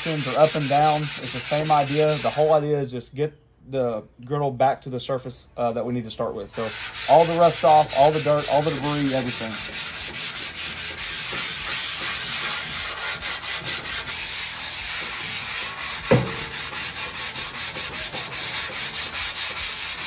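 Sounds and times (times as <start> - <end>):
grill brick scraping griddle: 0.0 - 2.9, 6.4 - 20.0
sharp knock: 16.0 - 16.5.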